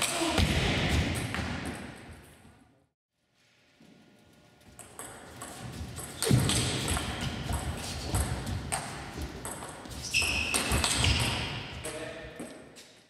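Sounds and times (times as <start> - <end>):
table tennis ball hits and bounces: 4.8 - 12.6.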